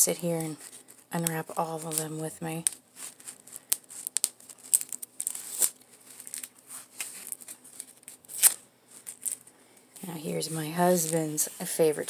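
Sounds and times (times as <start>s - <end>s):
plastic film crinkling and tearing: 0.0s - 9.4s.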